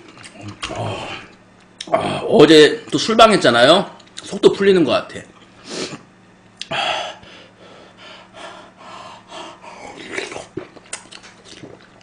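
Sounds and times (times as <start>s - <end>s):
man chewing food: 0.0s - 1.9s, 9.5s - 12.0s
man breathing: 6.6s - 10.2s.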